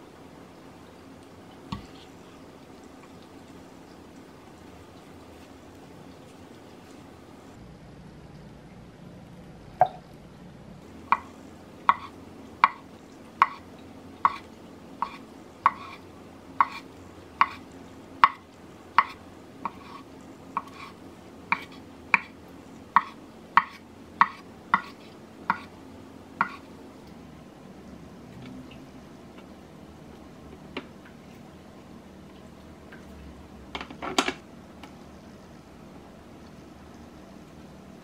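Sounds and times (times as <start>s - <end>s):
knife chopping on wooden board: 15.0s - 16.0s, 16.6s - 16.8s, 17.4s - 17.6s, 21.5s - 22.3s, 23.0s - 25.7s.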